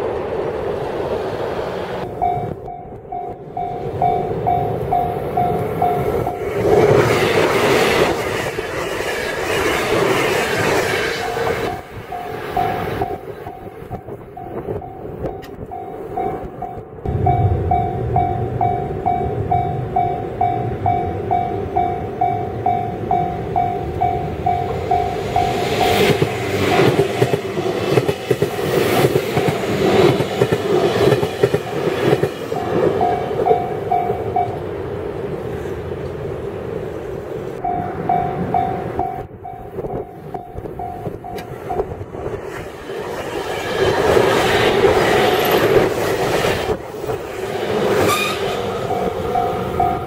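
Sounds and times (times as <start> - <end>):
electric train passing: 0.0 - 50.0
level-crossing warning bell: 2.0 - 6.5, 11.1 - 27.4, 32.4 - 34.8, 37.5 - 42.1, 48.6 - 50.0
wheels clicking over rail joints: 2.0 - 17.0, 37.5 - 50.0.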